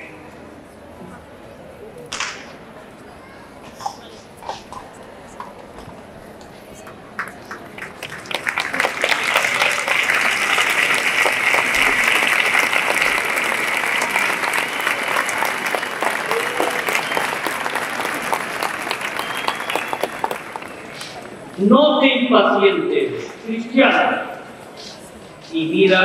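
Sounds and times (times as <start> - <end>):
crowd applauding: 6.9 - 21.6.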